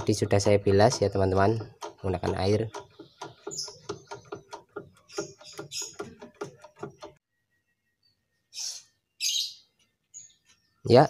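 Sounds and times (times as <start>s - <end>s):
quick irregular clicking: 0.0s - 7.2s
birds chirping: 0.0s - 11.0s.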